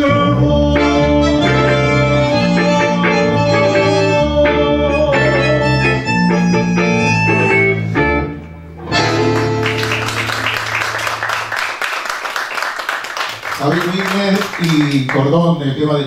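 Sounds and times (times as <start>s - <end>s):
tango ensemble playing: 0.0s - 10.9s
audience applause: 9.0s - 15.4s.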